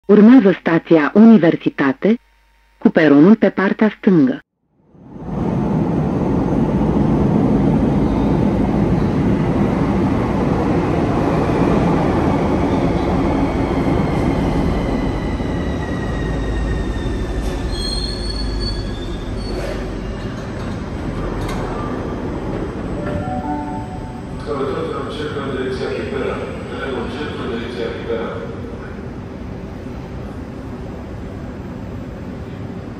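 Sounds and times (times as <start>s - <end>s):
train wheels rumbling on rail: 5.2s - 23.0s
short high squeals: 17.7s - 20.1s
faint train whine: 19.0s - 32.9s.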